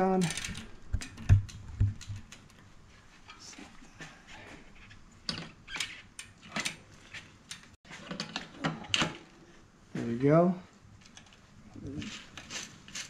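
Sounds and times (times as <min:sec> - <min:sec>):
bicycle chain clinking: 0:00.1 - 0:00.8.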